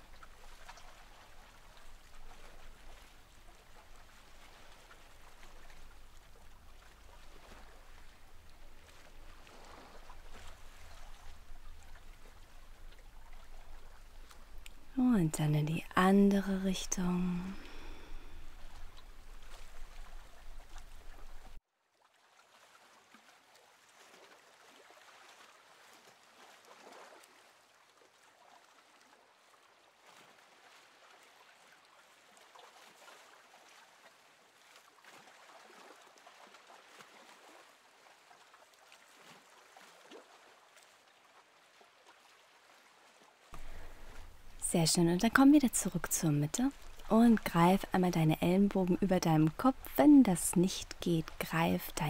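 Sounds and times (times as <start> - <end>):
low hum: 7.7 - 21.6
faint hiss: 43.6 - 44.9.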